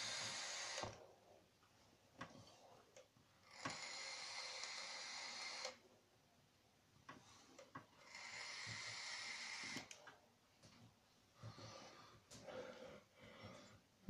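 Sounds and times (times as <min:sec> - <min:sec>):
soft breaths: 0:07.1 - 0:09.0, 0:10.0 - 0:14.0.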